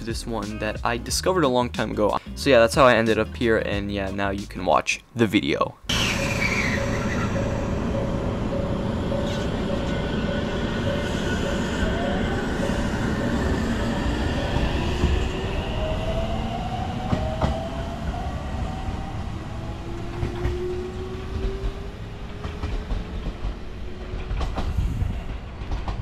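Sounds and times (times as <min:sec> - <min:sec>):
electric train motor whine: 0:05.9 - 0:22.1
train wheels rumbling: 0:05.9 - 0:26.0.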